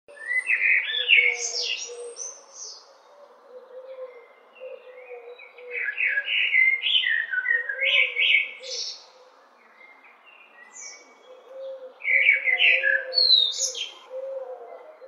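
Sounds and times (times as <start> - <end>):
blackbird singing: 0.1 - 15.0.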